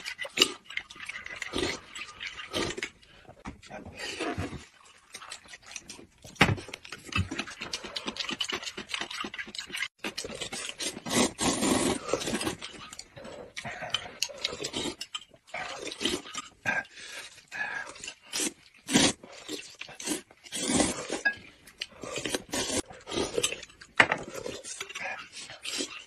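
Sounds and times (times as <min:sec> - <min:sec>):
slurping noodles: 0:00.0 - 0:06.0, 0:07.0 - 0:26.0
slurping soup from spoons: 0:07.2 - 0:26.0.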